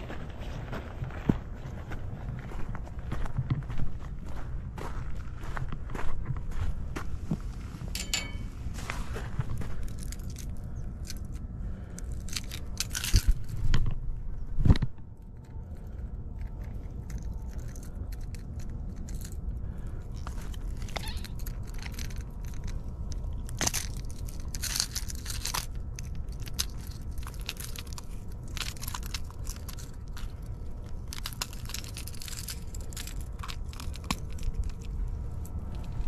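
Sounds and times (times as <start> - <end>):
wind rumbling on microphone: 0.0 - 23.6, 32.6 - 36.0
handling crackles and clicks: 9.4 - 36.0.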